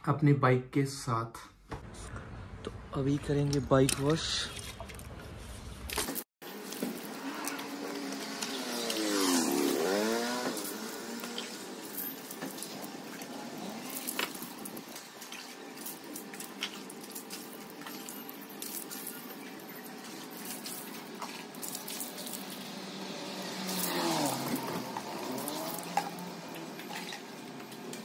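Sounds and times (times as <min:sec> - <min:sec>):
vehicle passing: 0:07.0 - 0:14.8, 0:21.1 - 0:27.7
water splashing: 0:10.8 - 0:28.0.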